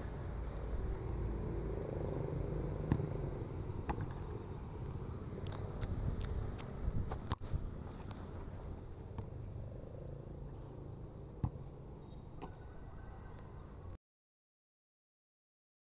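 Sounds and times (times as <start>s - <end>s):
insects chirring: 0.0s - 13.9s.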